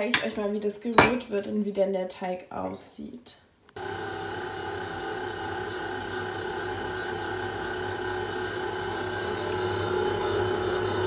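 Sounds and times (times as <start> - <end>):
stand mixer motor humming: 3.8 - 11.0.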